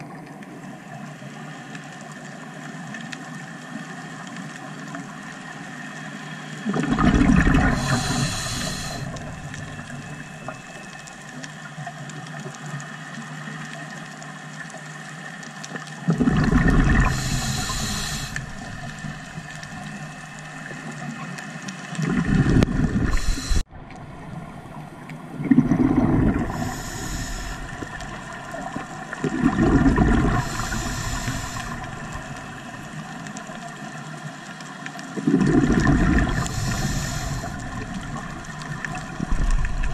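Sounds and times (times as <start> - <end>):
exhaled bubbles rumbling: 6.6 - 11.4, 15.7 - 39.9
regulator air hiss: 7.7 - 10.2, 17.0 - 20.1, 23.1 - 23.7, 26.5 - 27.9, 30.4 - 32.8, 36.4 - 37.9.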